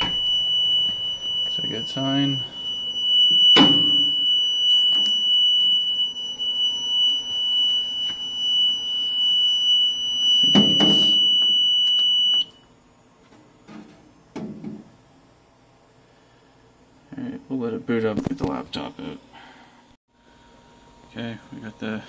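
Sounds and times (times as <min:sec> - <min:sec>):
alarm buzzer high-pitched tone: 0:00.0 - 0:12.6.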